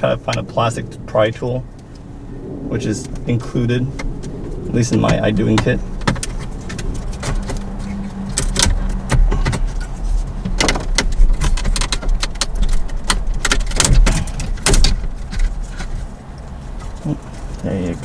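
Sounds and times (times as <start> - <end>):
low rumble: 0.0 - 10.5
plastic clicks and scrapes: 5.6 - 18.0.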